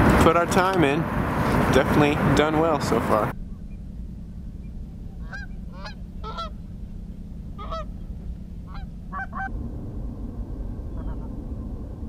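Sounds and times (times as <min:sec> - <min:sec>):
steady low rumble: 0:00.0 - 0:12.0
geese honking: 0:05.1 - 0:06.7, 0:07.5 - 0:09.5, 0:10.9 - 0:11.4.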